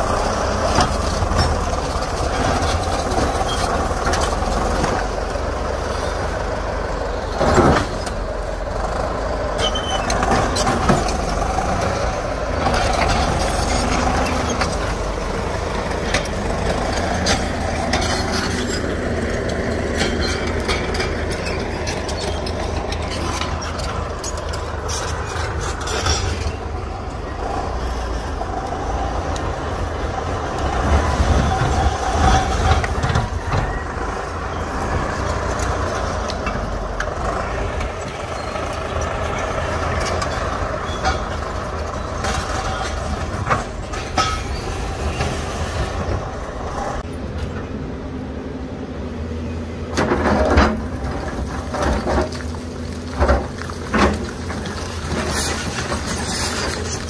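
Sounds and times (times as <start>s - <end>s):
bulldozer engine running: 0.0s - 57.0s
rocks knocking and scraping: 50.1s - 57.0s.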